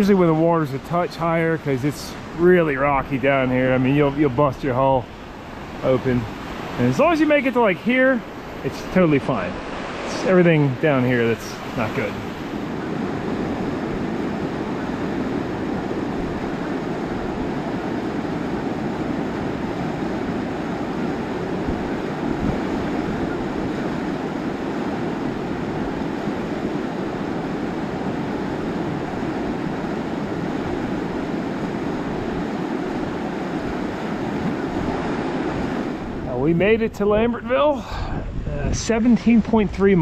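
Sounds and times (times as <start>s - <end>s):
wind rushing on microphone: 0.0s - 40.0s.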